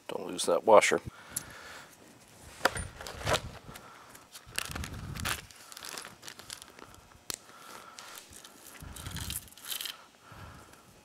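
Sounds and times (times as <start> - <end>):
plastic bag crinkling: 4.3 - 10.0
small metal parts clicking: 8.4 - 10.0.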